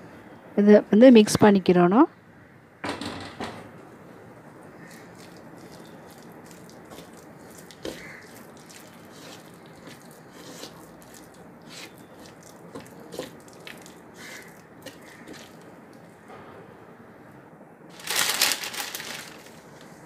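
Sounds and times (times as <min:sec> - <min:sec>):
hand mixing sticky batter: 0:04.6 - 0:16.0.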